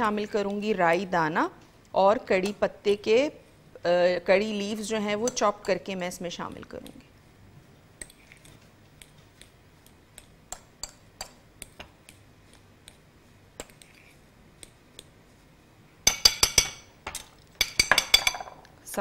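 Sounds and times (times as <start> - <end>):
spoon squishing mashed potato: 7.6 - 15.5.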